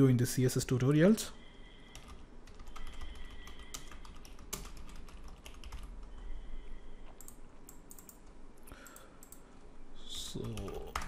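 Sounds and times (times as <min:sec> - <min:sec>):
computer keyboard typing: 0:01.9 - 0:06.2, 0:07.2 - 0:09.4, 0:10.4 - 0:11.0.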